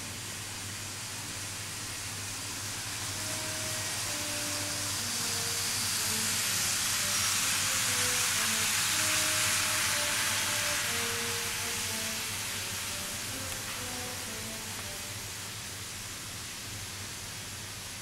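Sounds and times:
model train whirring on track: 0.0 - 18.0
faint music: 2.8 - 15.8.

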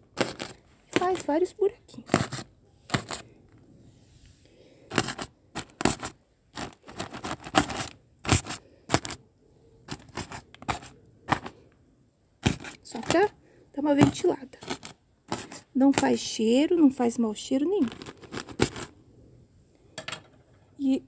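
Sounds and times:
knife piercing plastic bag: 0.1 - 1.2, 2.1 - 3.2, 4.9 - 9.2, 12.4 - 13.3, 14.1 - 15.6, 17.9 - 18.9.

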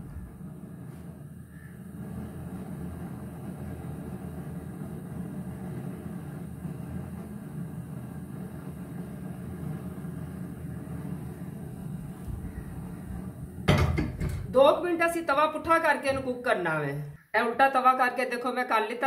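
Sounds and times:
gas burner flame rumbling: 0.0 - 18.2.

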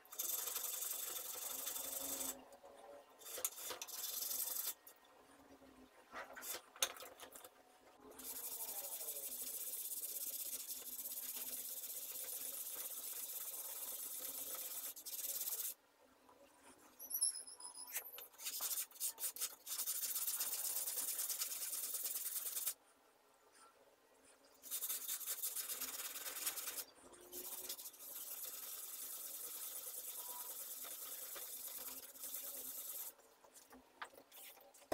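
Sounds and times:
chisel rasping on sandpaper: 8.2 - 15.7, 18.3 - 22.8, 24.6 - 26.8, 27.4 - 33.2.

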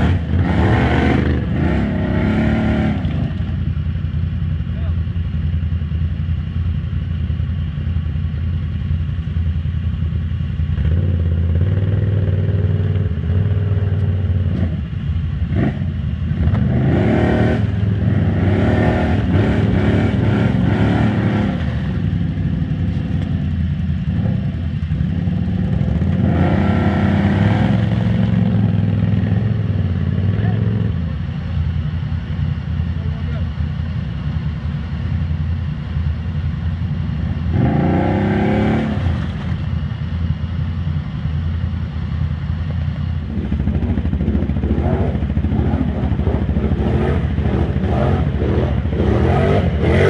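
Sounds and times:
atv engine revving: 0.0 - 5.0, 10.6 - 31.6, 36.5 - 40.8, 43.0 - 50.0.

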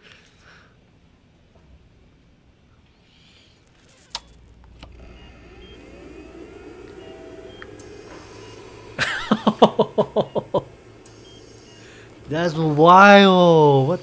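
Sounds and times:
small clicks: 3.6 - 5.8
low drone: 4.5 - 14.0
medical equipment alarm beeping: 4.7 - 14.0.

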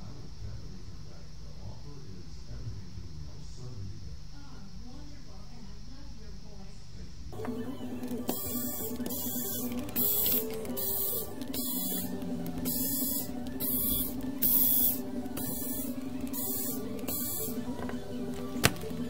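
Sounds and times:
steady low hum: 0.0 - 19.0
electric screwdriver hissing: 8.0 - 19.0.

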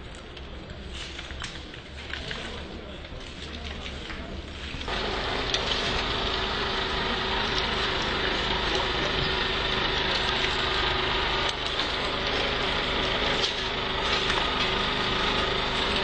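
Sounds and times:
vehicle engine idling: 4.9 - 16.0.

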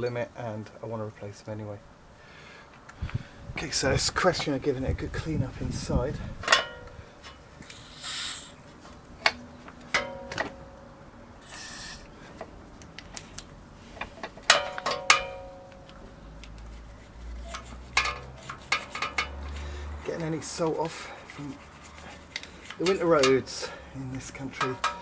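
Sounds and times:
short hisses: 7.6 - 8.6, 11.4 - 12.1
metal clinks and taps: 24.6 - 25.0.

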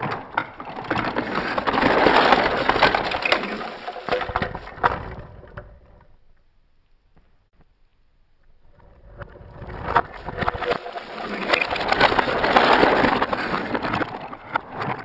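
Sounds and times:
toy cars rolling on plastic ramp: 0.0 - 6.2, 8.8 - 15.0.

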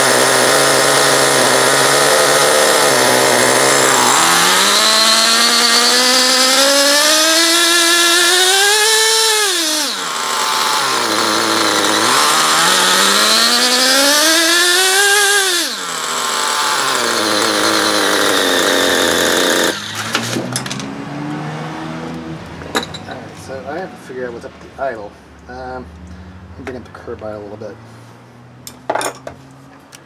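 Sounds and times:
small two-stroke engine revving: 0.0 - 22.4.

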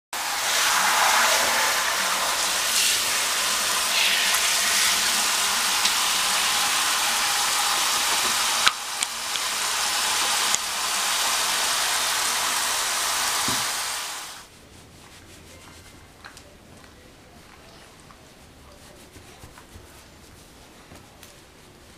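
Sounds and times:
shower water running into bathtub: 0.2 - 14.5.

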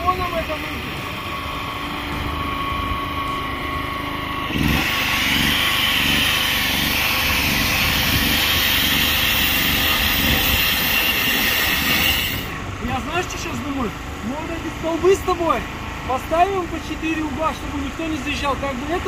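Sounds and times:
angle grinder cutting metal pipe: 0.1 - 12.6.

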